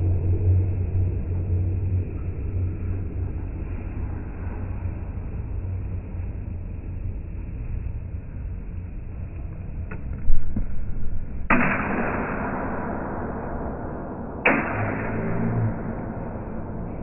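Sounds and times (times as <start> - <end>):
slowed steel saber hits: 10.0 - 17.0.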